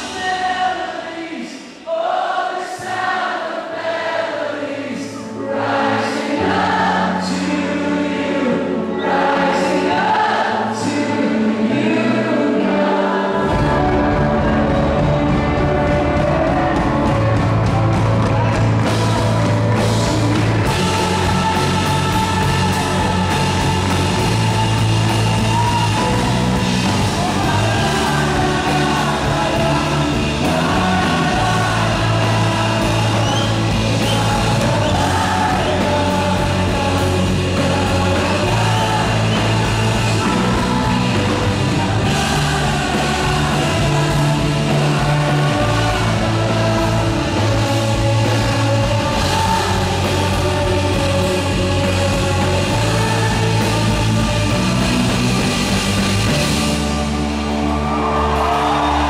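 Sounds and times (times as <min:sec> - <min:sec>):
man singing lead vocal: 0:00.0 - 0:03.3, 0:04.5 - 0:56.4
keyboard: 0:00.0 - 0:59.0
rock band playing worship song: 0:00.0 - 0:59.0
electric guitar: 0:06.4 - 0:59.0
bass guitar: 0:13.3 - 0:59.0.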